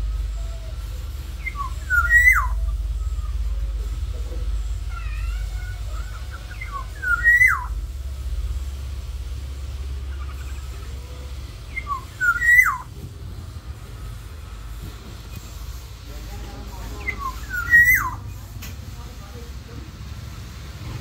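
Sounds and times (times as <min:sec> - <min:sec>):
bird warbling: 0:00.0 - 0:18.5
bird fluty whistles: 0:01.3 - 0:03.1, 0:06.0 - 0:07.8, 0:10.1 - 0:12.9, 0:16.9 - 0:18.3.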